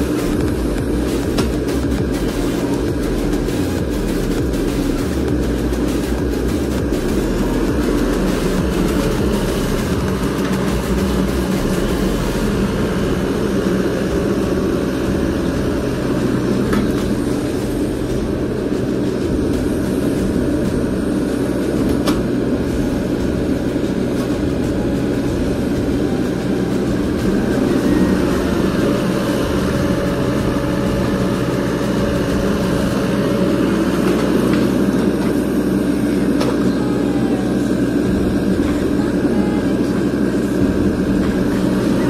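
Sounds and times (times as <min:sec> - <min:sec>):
excavator diesel engine running: 0:00.0 - 0:42.0.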